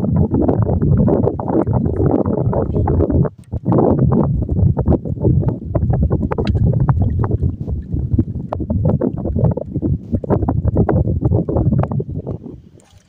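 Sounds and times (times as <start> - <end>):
wind rumble on microphone: 0.0 - 13.0
water slapping against boat hull: 3.2 - 3.9, 6.2 - 13.0.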